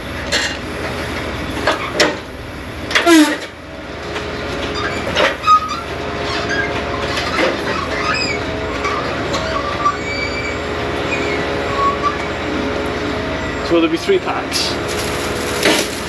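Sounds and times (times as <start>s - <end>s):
hydraulic crane running: 0.0s - 16.0s
small squeaks from pivots: 4.7s - 12.2s
falling metallic squeal: 4.8s - 12.3s.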